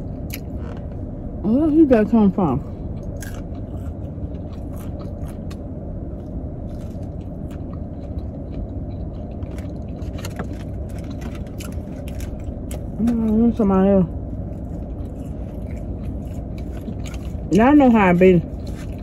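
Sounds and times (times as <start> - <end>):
clicks and rustles of food: 6.7 - 13.3.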